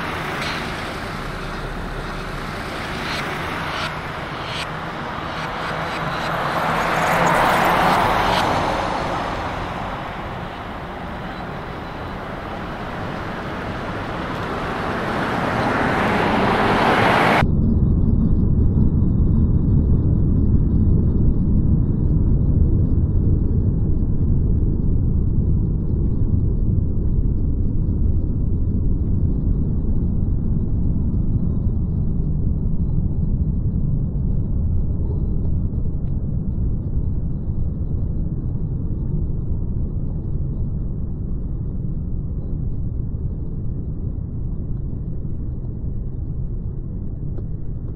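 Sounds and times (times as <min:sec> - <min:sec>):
heavy truck low rumble: 0:00.0 - 0:17.4
trucks passing hiss: 0:00.0 - 0:17.4.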